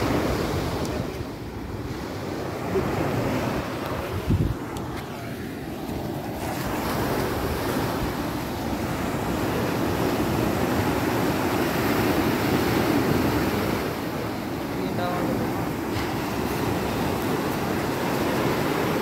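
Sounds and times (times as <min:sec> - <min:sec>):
sea surf washing: 0:00.0 - 0:19.0
wind buffeting microphone: 0:00.0 - 0:19.0.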